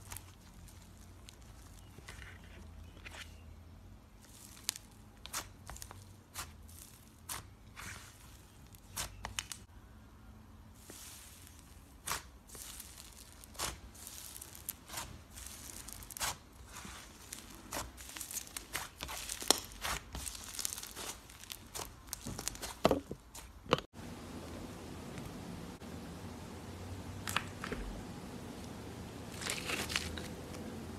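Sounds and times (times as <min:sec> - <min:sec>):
slime crackling and popping: 0:04.2 - 0:09.7, 0:10.8 - 0:23.5
faint steady hiss: 0:23.9 - 0:29.3.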